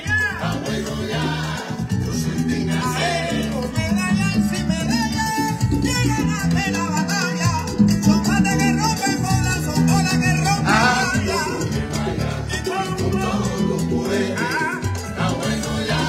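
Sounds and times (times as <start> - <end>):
salsa band playing: 0.0 - 16.0
person singing: 10.6 - 14.8.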